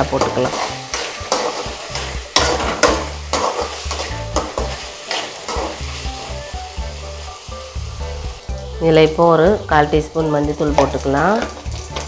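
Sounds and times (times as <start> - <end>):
spatula scraping pan: 0.0 - 7.3
potatoes sizzling in oil: 0.0 - 12.0.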